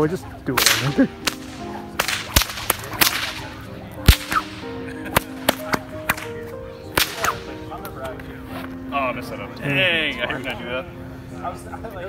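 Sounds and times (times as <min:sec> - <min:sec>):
bullwhip cracking: 0:00.5 - 0:07.6.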